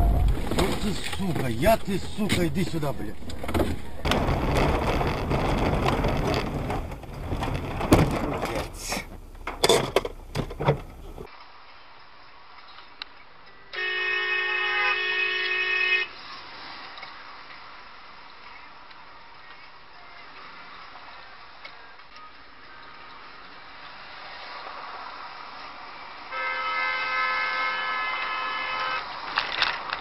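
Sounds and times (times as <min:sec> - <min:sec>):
rumbling road noise: 0:00.0 - 0:11.7, 0:27.0 - 0:30.0
car horn blast: 0:13.8 - 0:16.1, 0:26.3 - 0:29.1.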